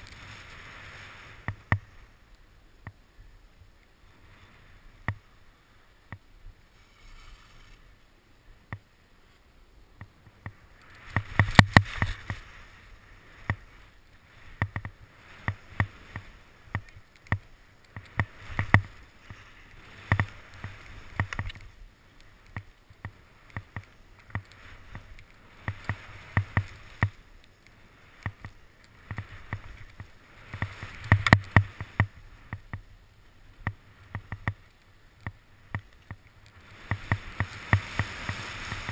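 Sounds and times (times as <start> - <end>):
ski edges scraping on snow: 0.0 - 2.2, 6.6 - 8.2, 10.5 - 38.9
sharp clicks and knocks: 33.6 - 38.9.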